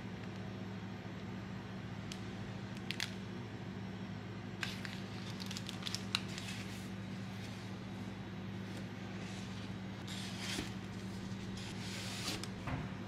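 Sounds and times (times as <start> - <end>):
steady low hum: 0.0 - 13.0
plastic bags crinkling: 4.6 - 6.9.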